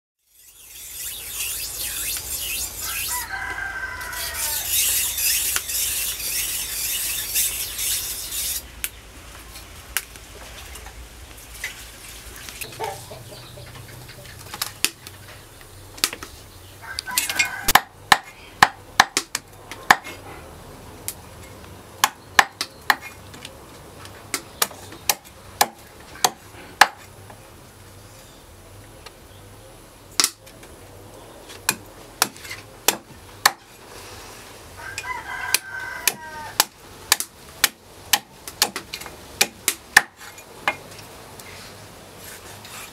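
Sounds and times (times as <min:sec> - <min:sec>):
meat cleaver chopping on wood block: 0:17.7 - 0:19.3
cleaver chopping on wooden block: 0:17.7 - 0:20.2, 0:22.0 - 0:23.2, 0:24.3 - 0:27.1, 0:31.7 - 0:33.7, 0:35.5 - 0:40.8.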